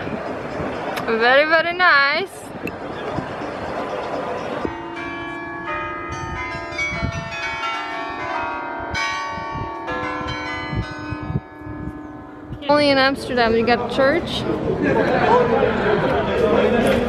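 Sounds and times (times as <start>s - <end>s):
tower bells playing a slow tune: 3.4s - 13.7s.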